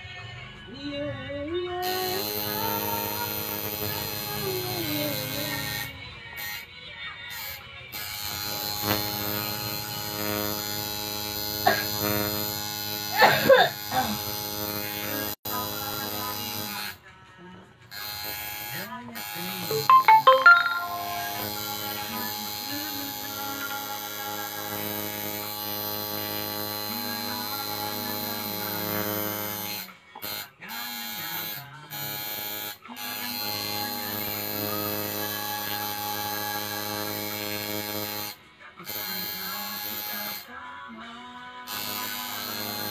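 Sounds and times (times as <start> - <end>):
tattoo machine buzzing: 1.8 - 6.6, 7.3 - 17.0, 17.9 - 19.9, 21.3 - 40.5, 41.7 - 42.9.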